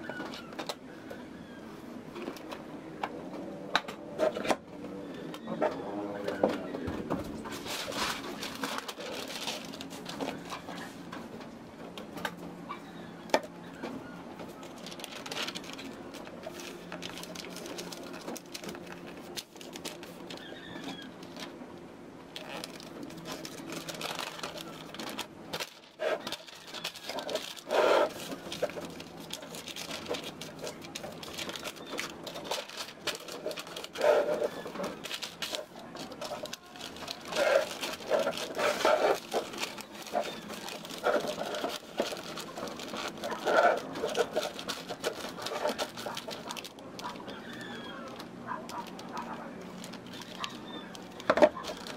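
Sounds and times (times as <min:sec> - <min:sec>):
wrapping paper rustling and crinkling: 0:07.2 - 0:11.1, 0:13.8 - 0:21.6, 0:22.3 - 0:51.9.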